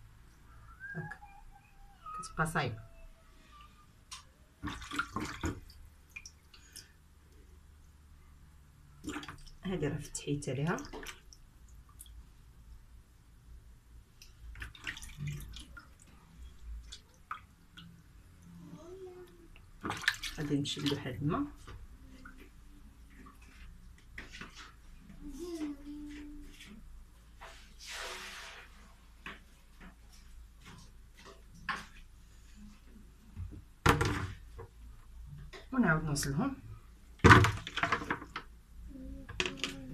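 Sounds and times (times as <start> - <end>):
plastic bucket clattering against basin: 37.2 - 38.5.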